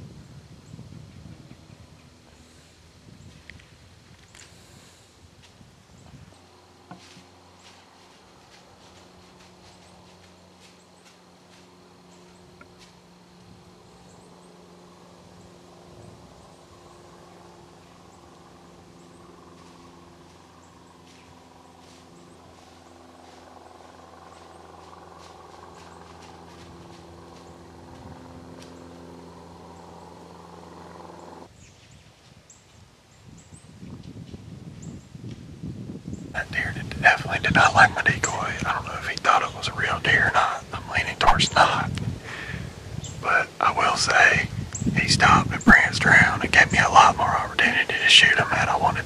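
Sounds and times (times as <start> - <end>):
low droning hum: 0.0 - 49.0
footsteps in dry leaves: 7.0 - 11.8.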